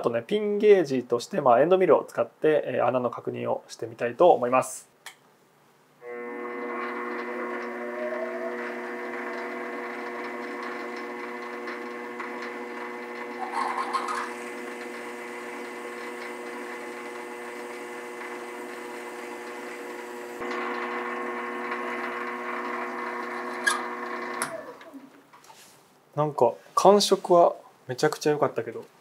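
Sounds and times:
lathe motor whine: 0:06.0 - 0:25.0
reamer squealing: 0:06.1 - 0:24.4.

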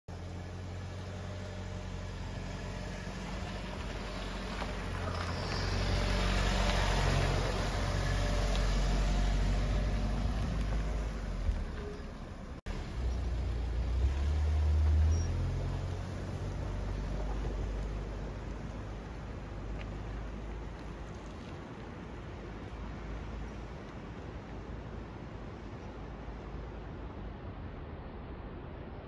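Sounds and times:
vehicle engine driving past: 0:00.1 - 0:19.0
low engine hum: 0:00.1 - 0:29.0.

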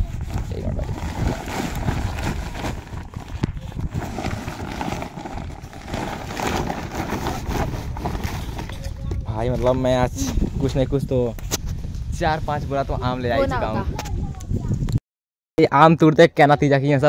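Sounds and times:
plastic sacks rustling: 0:00.1 - 0:08.8.

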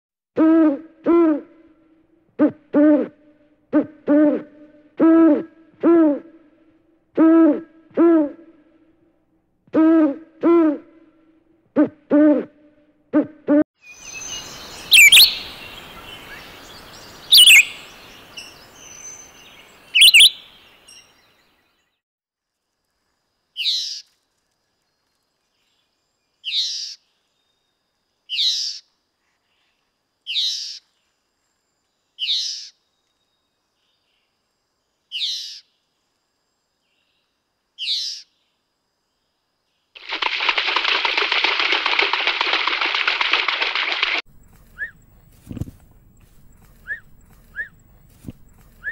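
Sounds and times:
rosella short falling calls: 0:14.0 - 0:21.0
kookaburra harsh calls: 0:14.9 - 0:15.6, 0:17.3 - 0:17.9, 0:20.0 - 0:20.5.

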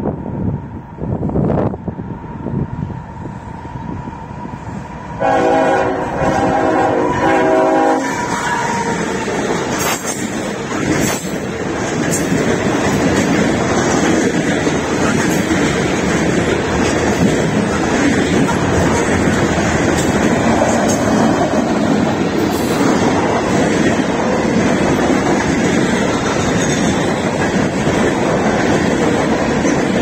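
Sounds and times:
freight train rumbling past: 0:00.0 - 0:30.0
train horn blasts: 0:05.2 - 0:09.0
wheels clacking over rail joints: 0:08.7 - 0:30.0.

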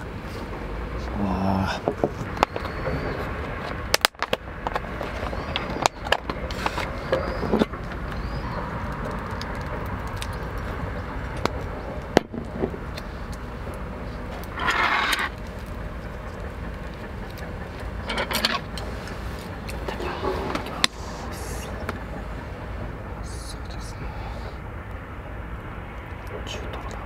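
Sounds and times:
steady low rumble: 0:00.0 - 0:27.0
tableware rustling: 0:14.6 - 0:15.3.

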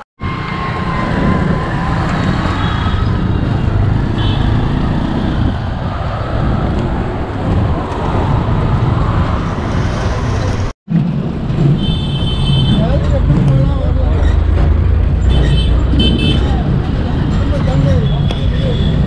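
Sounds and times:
road traffic noise: 0:00.0 - 0:19.0
engines running and passing: 0:00.2 - 0:11.9.

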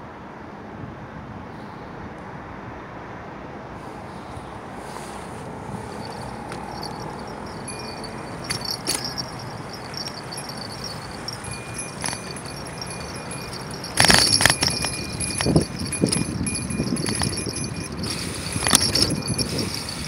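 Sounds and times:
bicycle rattling and clattering: 0:06.0 - 0:20.0.

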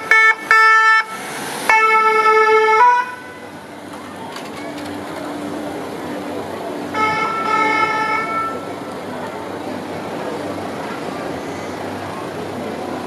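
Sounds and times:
siren horn blasts: 0:00.0 - 0:03.5, 0:06.9 - 0:08.7
street traffic noise: 0:00.0 - 0:13.0.

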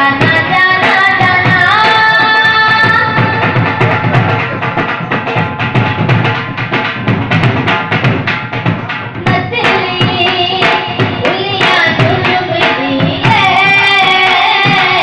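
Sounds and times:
girl singing: 0:00.0 - 0:03.8, 0:09.2 - 0:15.0
harmonium: 0:00.0 - 0:08.1
fast drumming: 0:00.0 - 0:15.0.

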